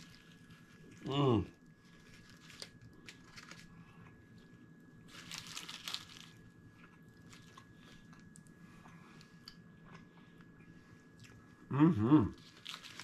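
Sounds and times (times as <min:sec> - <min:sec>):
foil wrapper crinkling: 0:00.0 - 0:01.0, 0:01.9 - 0:03.8, 0:05.1 - 0:06.5, 0:12.4 - 0:13.0
chewing with small crunches: 0:00.0 - 0:11.6, 0:12.3 - 0:13.0.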